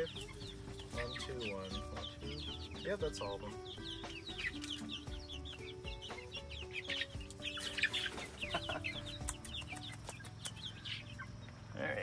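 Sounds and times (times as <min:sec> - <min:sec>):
chicks cheeping: 0:00.0 - 0:12.0.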